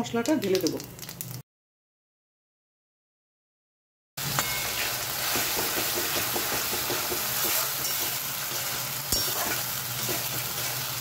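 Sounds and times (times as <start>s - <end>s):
paste sizzling in hot oil: 4.2s - 11.0s.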